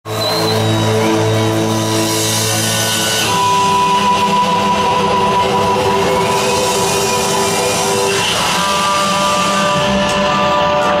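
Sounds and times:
live rock band playing: 0:00.8 - 0:11.0.

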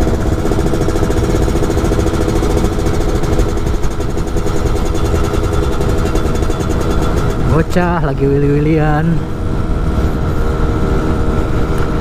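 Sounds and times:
two-stroke motorcycle engine cruising: 0:00.0 - 0:12.0
wind rumble on microphone: 0:06.0 - 0:12.0.

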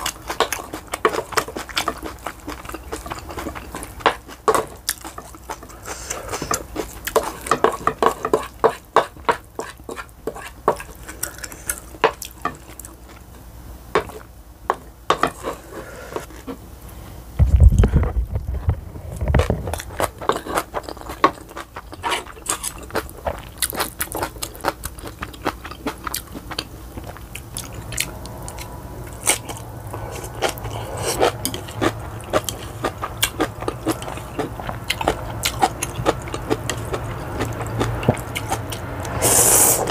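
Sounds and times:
wet chewing and biting: 0:19.4 - 0:39.2
loud low rumble: 0:27.4 - 0:32.7.

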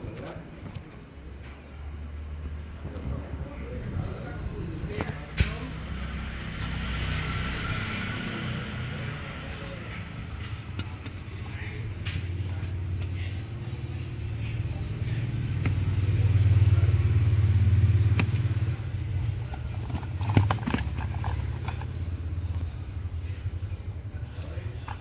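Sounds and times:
clicks and taps of boxes handled: 0:10.4 - 0:11.3, 0:18.1 - 0:18.6, 0:19.2 - 0:22.2.

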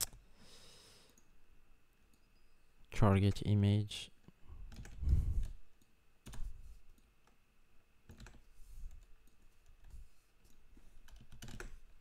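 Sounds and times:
faint steady hum: 0:00.0 - 0:12.0
computer keyboard keystrokes: 0:04.7 - 0:07.1, 0:08.1 - 0:09.9, 0:10.5 - 0:11.8.

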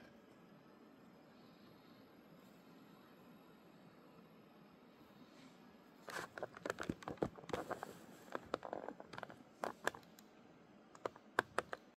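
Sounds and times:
light clicks and taps: 0:11.0 - 0:11.9.

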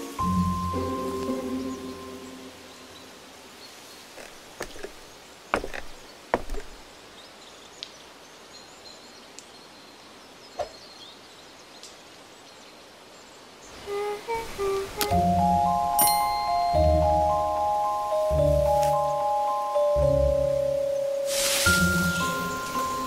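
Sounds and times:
musical tones: 0:00.0 - 0:03.0, 0:13.8 - 0:23.0
soft steady hiss: 0:00.0 - 0:23.0.

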